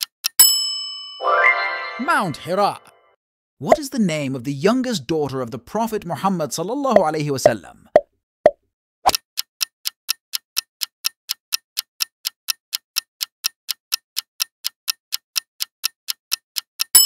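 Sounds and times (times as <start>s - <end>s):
clock-like ticks: 0.0s - 0.4s, 9.1s - 17.0s
bell-like chime: 0.4s - 2.8s.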